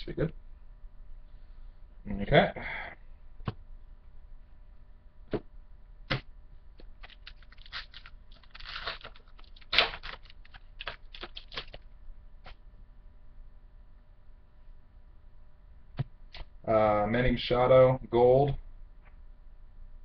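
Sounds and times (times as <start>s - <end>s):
trading cards clicking and snapping: 6.8s - 11.8s
rustle of cards or wrapper: 7.0s - 11.8s.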